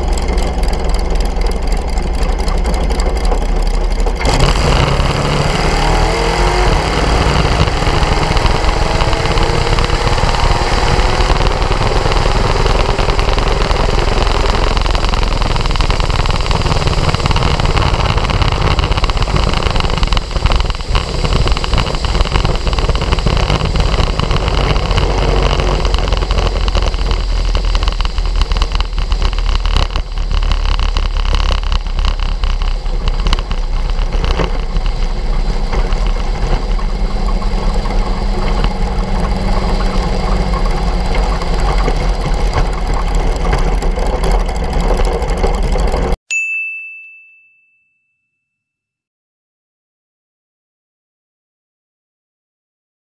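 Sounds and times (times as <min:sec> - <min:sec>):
dragster engine running: 0:00.0 - 0:46.2
wind noise on microphone: 0:04.2 - 0:46.2.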